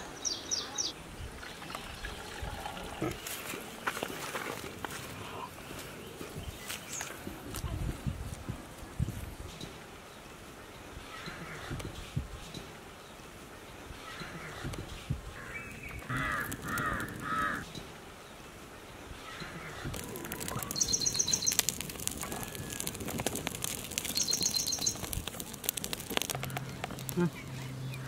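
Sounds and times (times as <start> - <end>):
birds calling: 13.9 - 28.0
wood fire crackling and popping: 15.7 - 17.6, 19.8 - 28.0.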